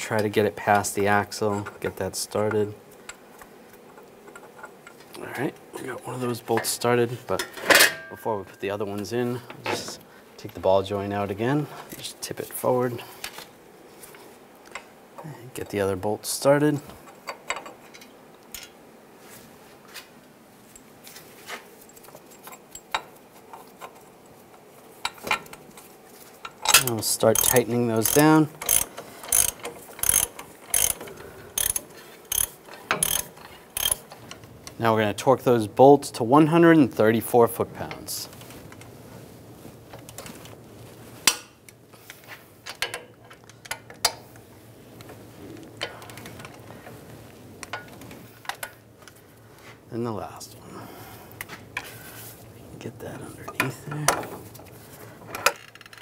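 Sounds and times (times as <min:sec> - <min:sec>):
wrench and socket clinking: 0:26.6 - 0:34.1
torque wrench click: 0:26.7 - 0:34.0.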